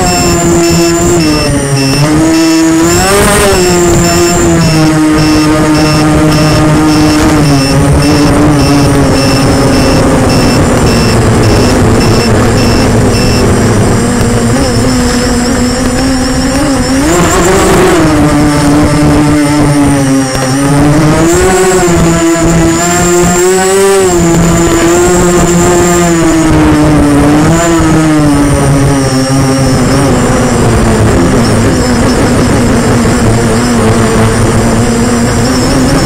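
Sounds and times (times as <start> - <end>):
drone propellers whining: 0.0 - 36.0
faint high pulsing beep: 0.0 - 36.0.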